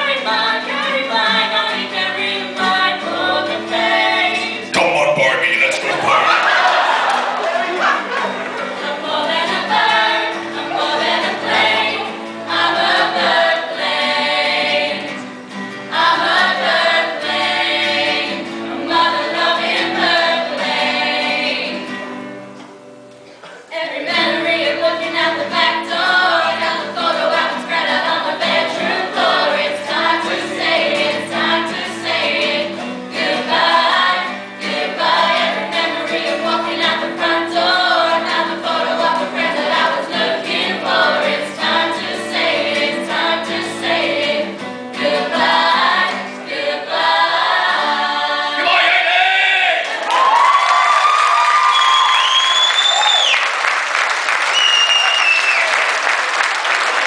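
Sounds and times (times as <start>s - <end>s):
young voices singing together: 0.0s - 22.0s, 23.4s - 50.5s
acoustic guitar strumming: 0.5s - 6.9s, 7.9s - 23.4s.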